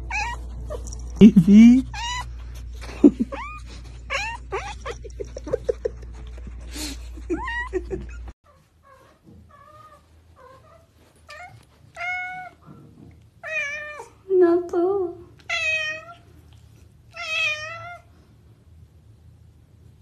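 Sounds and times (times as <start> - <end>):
cat meowing: 0.0 - 0.8, 1.9 - 2.4, 3.3 - 5.0, 11.3 - 12.6, 13.4 - 14.1, 15.5 - 16.2, 17.1 - 18.1.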